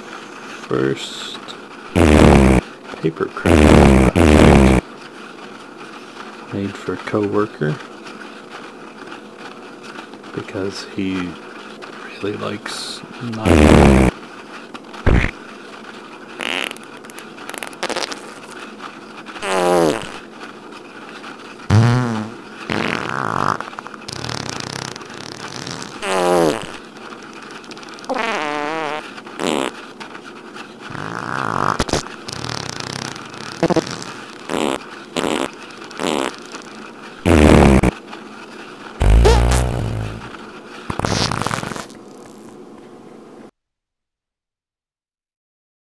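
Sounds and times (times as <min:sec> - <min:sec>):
fart sound effects: 0:01.9 - 0:02.7, 0:03.4 - 0:04.8, 0:13.4 - 0:14.2, 0:15.0 - 0:15.4, 0:16.4 - 0:16.9, 0:17.5 - 0:18.5, 0:19.4 - 0:20.2, 0:21.7 - 0:26.8, 0:28.0 - 0:29.8, 0:30.9 - 0:38.0, 0:39.0 - 0:40.3, 0:40.9 - 0:42.6.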